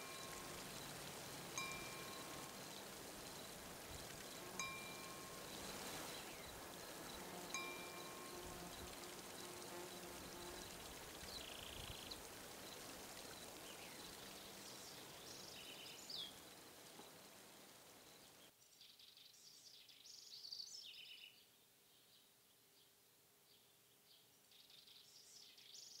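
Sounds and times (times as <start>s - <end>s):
small birds chirping: 0.0s - 17.4s
soft even hiss: 0.0s - 26.0s.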